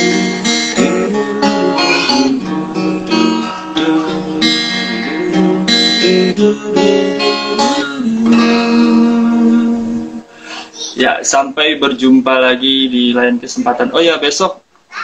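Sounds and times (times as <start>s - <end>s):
acoustic guitar strummed: 0.0s - 11.0s.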